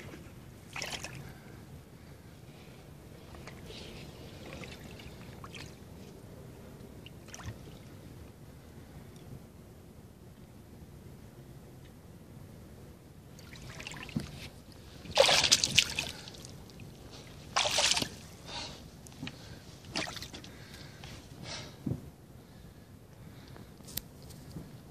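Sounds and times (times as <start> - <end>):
water splashing and sloshing: 0.0 - 8.2, 13.3 - 21.4.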